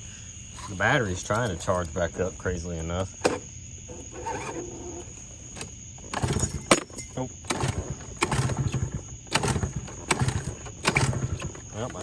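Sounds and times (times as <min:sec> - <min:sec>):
scooter engine sputtering: 0:06.0 - 0:06.7, 0:07.4 - 0:12.0.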